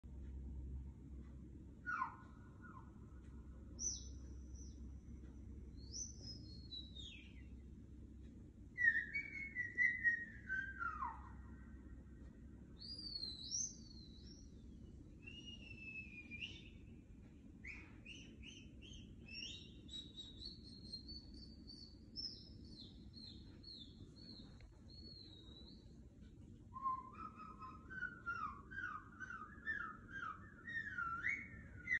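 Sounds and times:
rapid warbling whistle: 1.9s - 3.0s, 8.8s - 11.6s, 15.2s - 16.8s, 26.8s - 32.0s.

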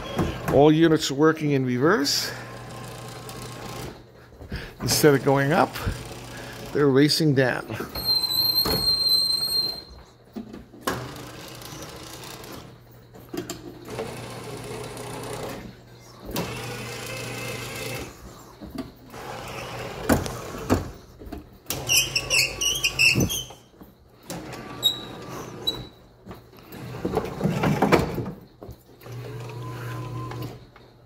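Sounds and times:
mechanical running on metal rails: 2.1s - 4.1s, 10.8s - 20.8s.

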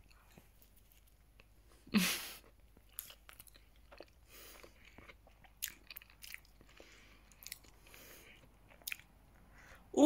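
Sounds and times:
close-up chewing: 2.4s - 9.6s.

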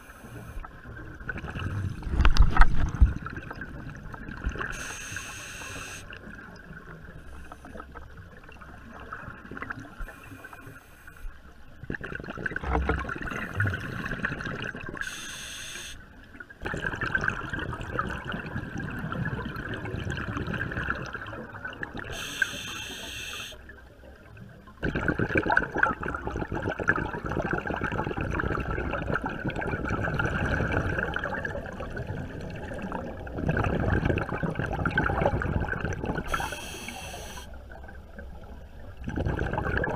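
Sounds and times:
muffled underwater water sloshing: 0.0s - 39.9s
short hissing bursts: 4.8s - 6.1s, 15.0s - 16.0s, 22.2s - 23.6s, 36.3s - 37.5s.

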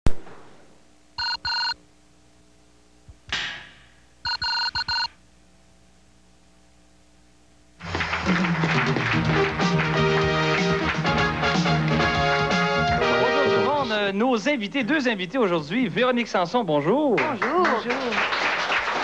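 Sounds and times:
electronic telephone ringer warbling: 1.2s - 1.8s, 4.3s - 5.1s
people clapping: 7.8s - 13.1s, 16.9s - 19.0s
music: 7.8s - 14.1s.

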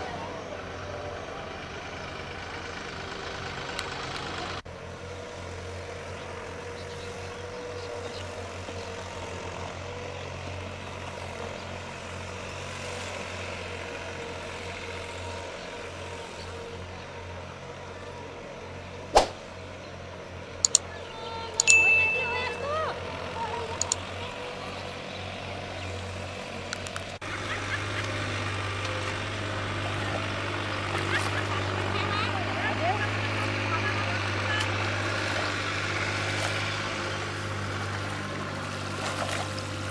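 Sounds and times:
tractor engine droning: 0.0s - 39.9s
sharp knock: 19.2s - 19.5s.

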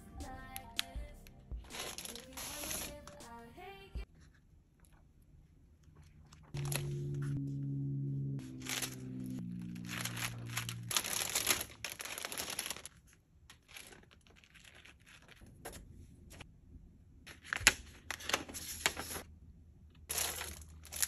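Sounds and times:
packaging crinkling: 1.7s - 3.0s, 8.5s - 15.6s, 20.1s - 21.0s
paper pages rustling: 1.7s - 3.2s, 6.0s - 7.4s, 8.4s - 16.4s, 17.3s - 19.3s, 20.1s - 21.0s
sustained musical notes: 6.6s - 11.2s.

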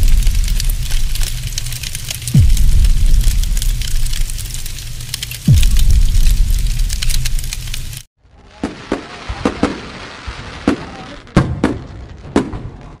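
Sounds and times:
sharp cracks and pops: 0.0s - 8.1s
steady hiss: 0.0s - 8.1s
low rushing noise with crackle: 0.0s - 8.5s.

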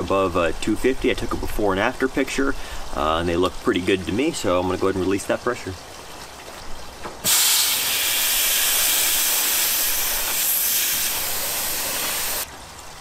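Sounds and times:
compressed gas hissing from hose: 7.2s - 12.5s.

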